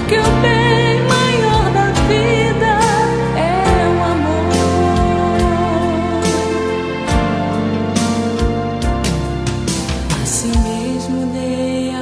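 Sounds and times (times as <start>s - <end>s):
drum beats: 7.1s - 10.9s.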